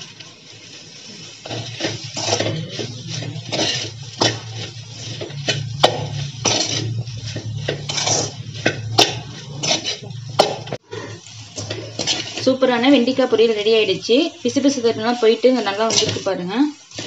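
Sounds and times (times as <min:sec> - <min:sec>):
spatula scraping metal pan: 0:01.1 - 0:17.0
spatula clanking on metal: 0:01.4 - 0:12.5, 0:15.8 - 0:16.3.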